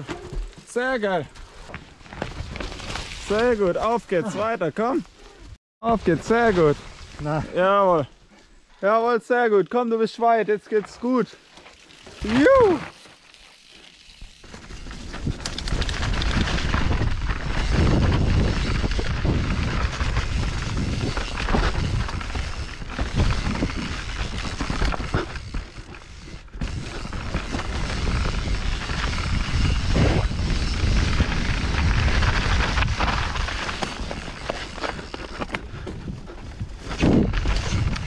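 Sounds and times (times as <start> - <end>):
bike rattling over rough trail: 0.0 - 5.0, 10.8 - 38.0
wind buffeting microphone: 15.0 - 38.0.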